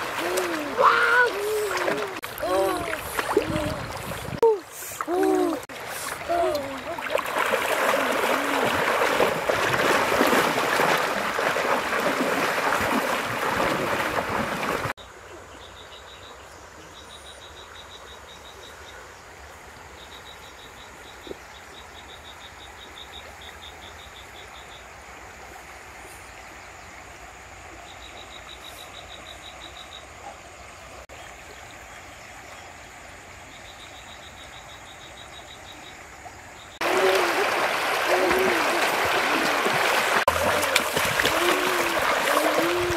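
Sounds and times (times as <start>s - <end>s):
river water splashing: 0.0s - 15.0s, 36.2s - 42.9s.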